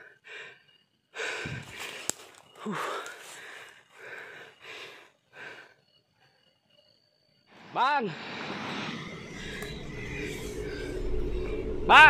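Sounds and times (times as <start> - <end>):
man breathing hard: 0.0 - 6.2
footsteps through brush: 1.5 - 3.8.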